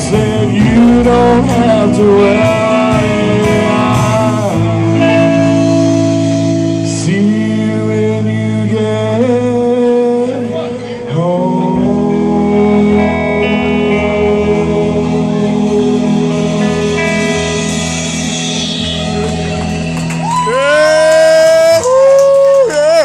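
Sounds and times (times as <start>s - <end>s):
live rock band playing: 0.0s - 23.0s
ringing guitar notes: 12.6s - 21.2s.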